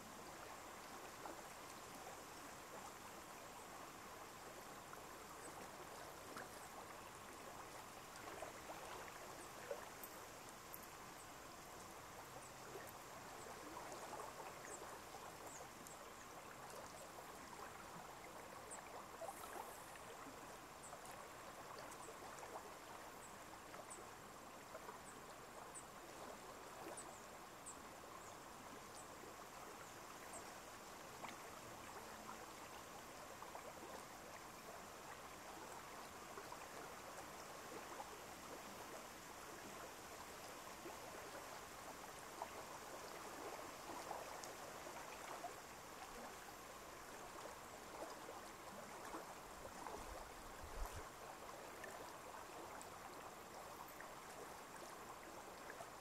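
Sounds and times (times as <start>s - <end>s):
running water rushing: 29.4s - 56.0s.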